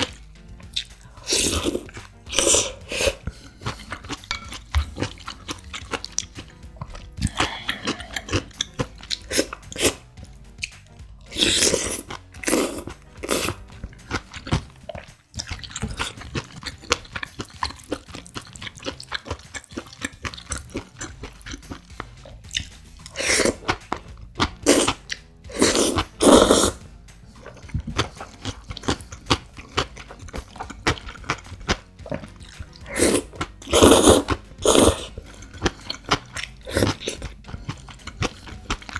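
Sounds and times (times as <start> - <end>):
wet chewing: 0.0 - 38.9
slurping noodles: 1.1 - 6.4, 7.2 - 10.1, 11.2 - 21.8, 22.6 - 23.8, 24.4 - 38.9.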